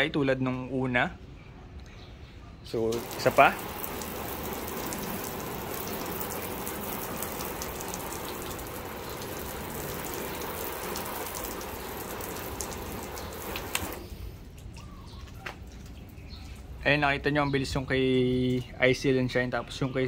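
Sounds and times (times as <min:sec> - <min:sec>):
hose water spraying on car: 0:02.9 - 0:14.4.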